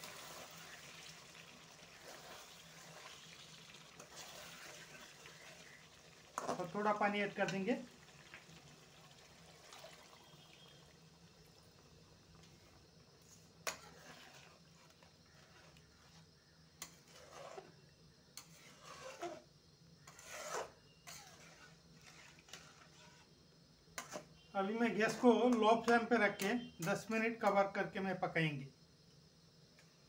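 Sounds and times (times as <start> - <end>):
spatula stirring and scraping pan: 0.0 - 9.0, 11.7 - 27.2
water pouring into a pan: 0.0 - 12.1.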